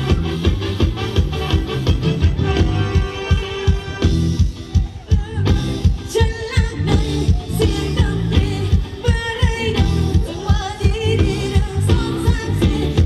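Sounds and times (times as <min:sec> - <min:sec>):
steady drum beat: 0:00.0 - 0:13.0
person singing: 0:04.7 - 0:13.0.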